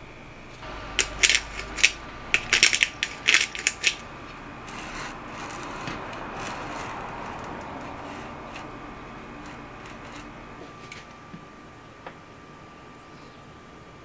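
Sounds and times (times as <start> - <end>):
pepper mill grinding: 0.5 - 11.2.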